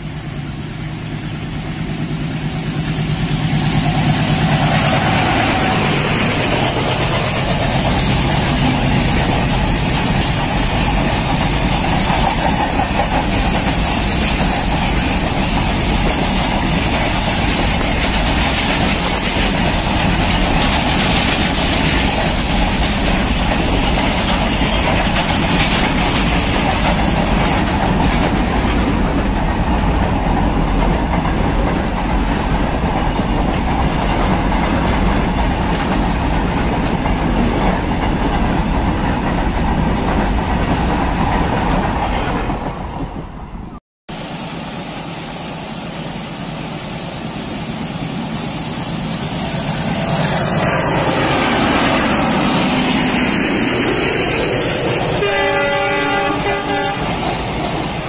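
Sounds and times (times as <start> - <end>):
train wheels clattering over rail joints: 0.0 - 43.0.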